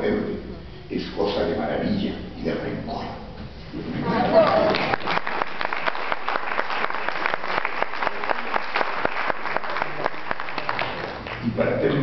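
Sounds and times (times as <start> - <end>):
audience applauding: 4.2 - 11.5.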